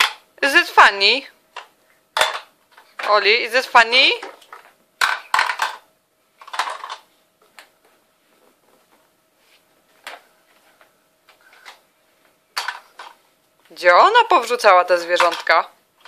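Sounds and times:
plastic toys clattering: 0:01.6 - 0:03.2, 0:04.2 - 0:07.1, 0:12.6 - 0:13.2, 0:15.1 - 0:15.7.

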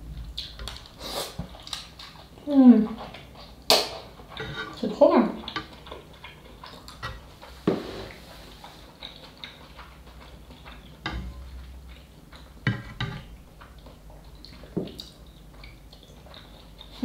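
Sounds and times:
quiet chewing: 0:00.2 - 0:17.0
chopsticks scraping a frying pan: 0:04.4 - 0:05.8, 0:06.9 - 0:08.5.

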